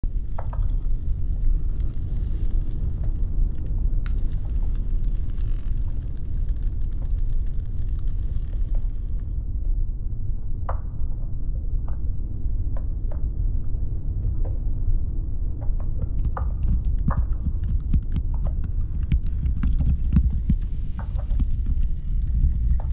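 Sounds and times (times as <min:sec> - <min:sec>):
deep glacier ice rumble: 0:00.0 - 0:09.8, 0:12.6 - 0:22.9
ice cracks and pops: 0:00.1 - 0:09.4, 0:16.0 - 0:22.9.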